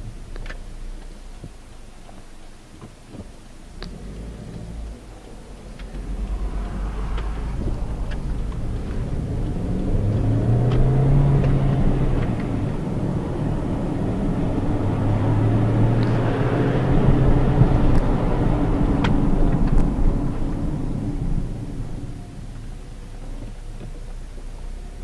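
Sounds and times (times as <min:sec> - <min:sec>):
car engine hum: 0:00.0 - 0:25.0
tyre and road noise: 0:00.0 - 0:25.0.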